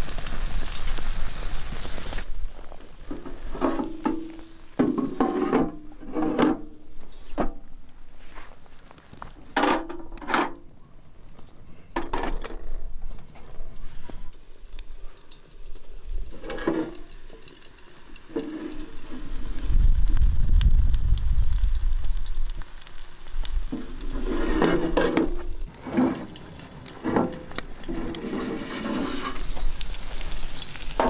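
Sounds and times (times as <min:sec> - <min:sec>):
metal clanks and scrapes: 0:03.1 - 0:07.6, 0:09.5 - 0:10.6, 0:16.2 - 0:17.7, 0:18.3 - 0:19.5, 0:23.7 - 0:29.8.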